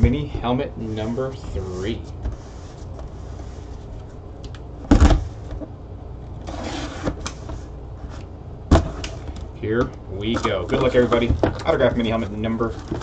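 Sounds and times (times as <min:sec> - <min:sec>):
cardboard sliding scrape: 0:01.0 - 0:03.9, 0:06.4 - 0:07.7.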